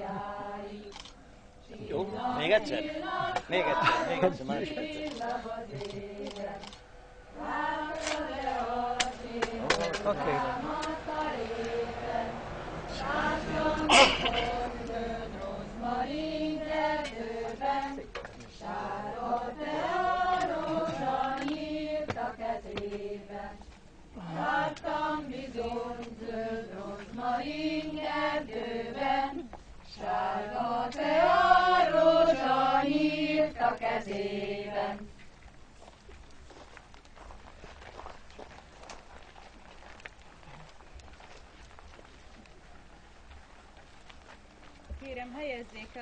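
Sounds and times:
choir singing unaccompanied: 0.0s - 0.9s, 1.6s - 6.6s, 7.2s - 35.1s.

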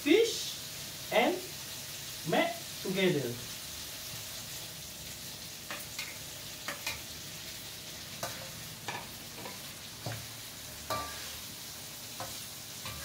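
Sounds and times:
food sizzling in a wok: 0.0s - 13.0s
spatula clinking and scraping pan: 5.7s - 7.1s, 8.1s - 11.5s, 12.1s - 13.0s.

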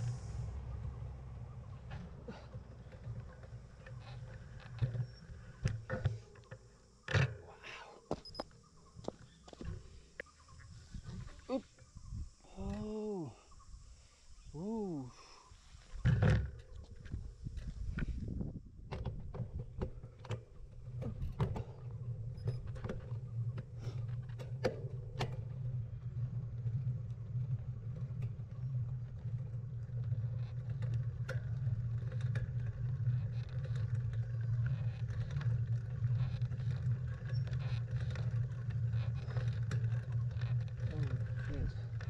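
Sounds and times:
bicycle tyre rumble: 0.0s - 42.0s.

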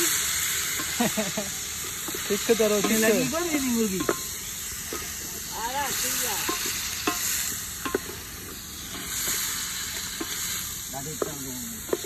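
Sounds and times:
meat and onions sizzling: 0.0s - 12.0s
spoon clinking against pot: 4.0s - 5.2s, 6.4s - 8.2s.

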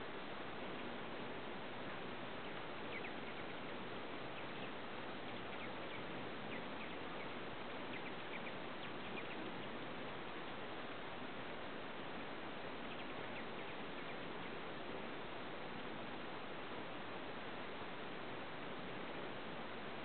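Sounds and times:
background hiss: 0.0s - 20.0s
hummingbird chip calls: 2.3s - 10.7s, 11.8s - 14.7s.

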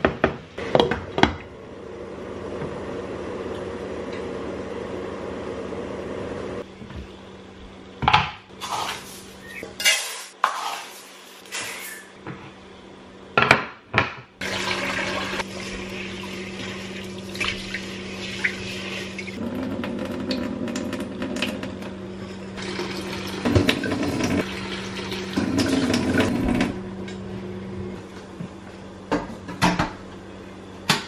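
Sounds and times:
tap water running into sink: 22.6s - 26.4s.

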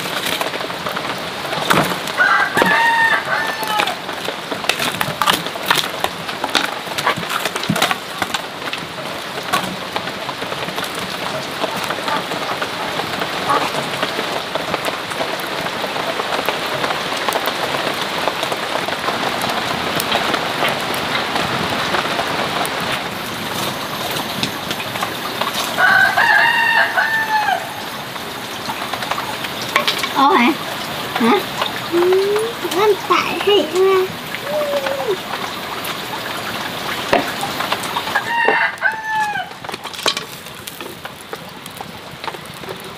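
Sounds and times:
rooster crowing: 2.2s - 4.0s, 25.7s - 27.9s, 38.0s - 39.6s.

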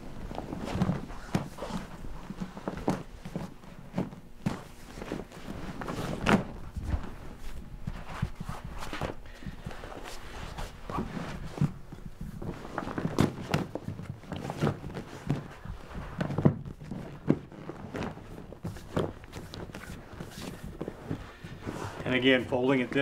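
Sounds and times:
heavy rubber thudding and rubbing: 0.0s - 23.0s.

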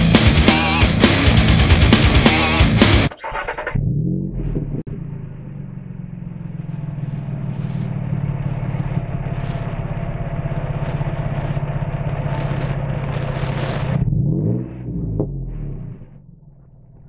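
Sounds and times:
truck engine idling: 4.8s - 14.0s.

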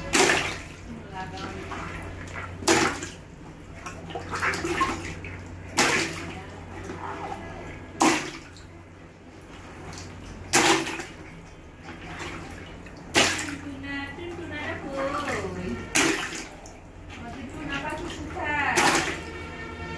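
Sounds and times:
water sloshing: 0.0s - 19.9s
water balloons bursting: 8.0s - 8.5s, 10.5s - 11.2s, 13.1s - 13.6s, 15.2s - 16.6s, 18.7s - 19.4s.

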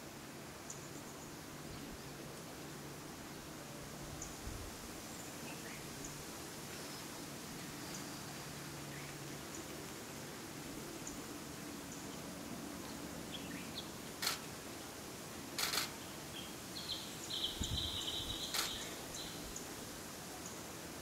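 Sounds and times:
camera shutter clicking: 14.2s - 14.4s, 15.6s - 15.9s, 18.5s - 18.8s
steady high bird call: 15.6s - 19.4s
short high bird chirps: 17.6s - 18.9s.

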